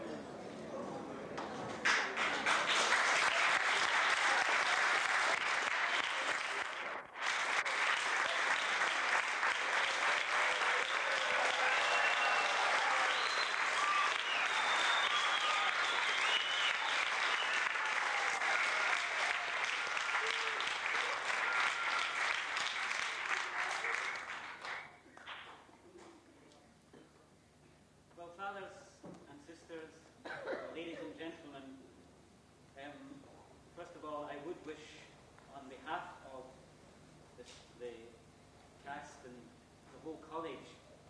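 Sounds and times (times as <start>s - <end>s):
audience applauding: 1.8s - 25.6s.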